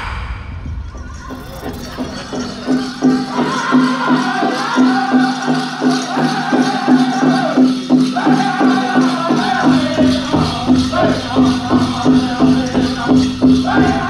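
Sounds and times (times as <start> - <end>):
big drum steady beat: 0.0 - 14.0
high-pitched group singing: 0.0 - 14.0.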